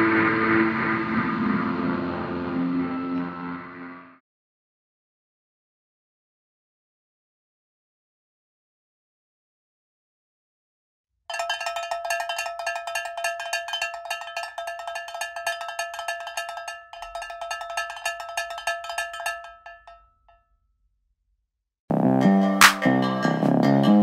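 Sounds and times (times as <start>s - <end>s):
small metal bell trilling: 11.3s - 20.4s.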